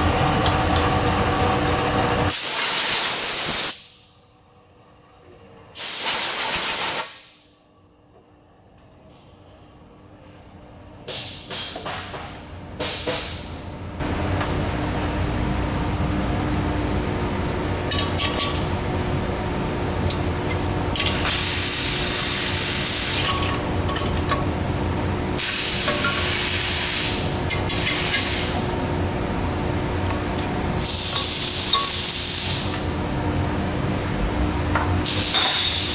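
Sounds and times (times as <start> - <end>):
steady machine hum: 0.0 - 35.9
compressed air hissing from blow gun: 5.8 - 7.5, 30.8 - 32.7.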